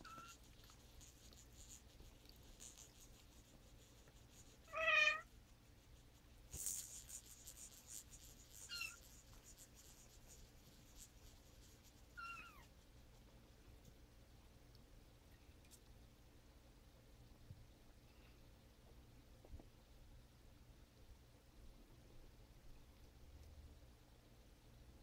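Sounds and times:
cats meowing: 0.0 - 0.4, 4.7 - 5.2, 12.2 - 12.7.

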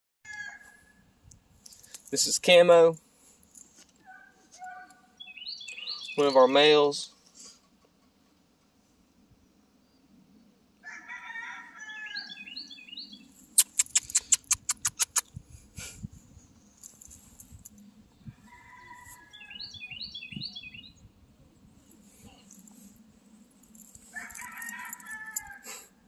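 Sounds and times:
rooster crowing: 0.3 - 1.0, 10.8 - 12.4, 18.3 - 19.6, 24.1 - 25.7
bird chirps: 4.1 - 6.8, 12.0 - 15.2, 19.2 - 21.1
fast sharp clicks: 13.6 - 15.3.

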